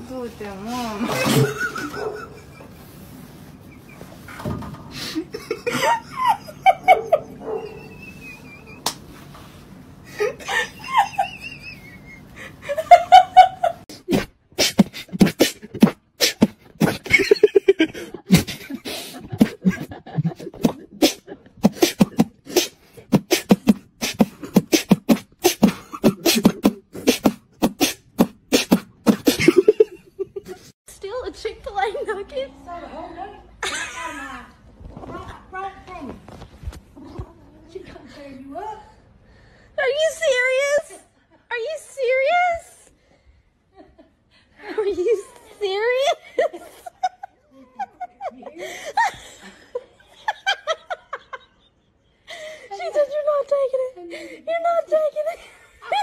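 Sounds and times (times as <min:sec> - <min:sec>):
low background noise: 0:00.0 - 0:23.0, 0:29.4 - 0:56.0
beatboxing: 0:13.9 - 0:17.3, 0:18.3 - 0:29.8.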